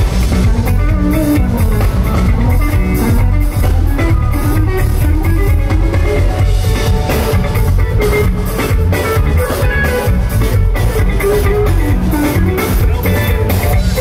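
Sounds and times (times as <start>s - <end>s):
bass guitar: 0.0s - 14.0s
drum kit: 0.0s - 14.0s
electric guitar lead: 0.0s - 14.0s.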